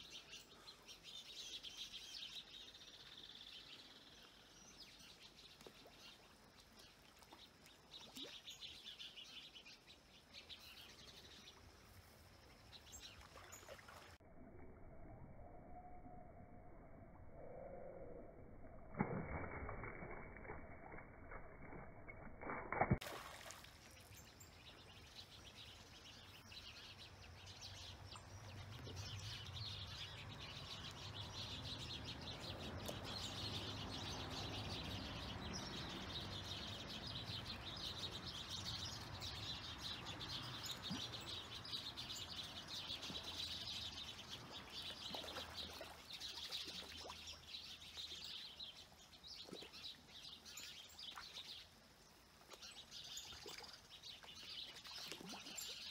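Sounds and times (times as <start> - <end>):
fish splashing in pond: 5.4 - 8.9, 12.5 - 14.2, 18.8 - 25.4, 40.0 - 48.4, 49.4 - 55.9
birds chirping: 23.9 - 55.9.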